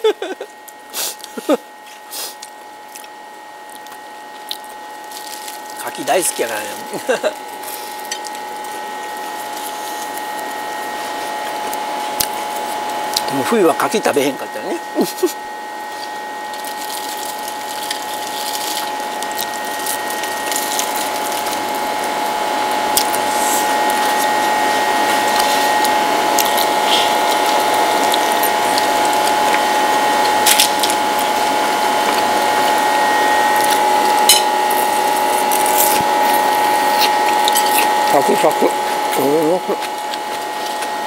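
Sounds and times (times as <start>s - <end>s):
steady high tone: 21.3s - 41.0s.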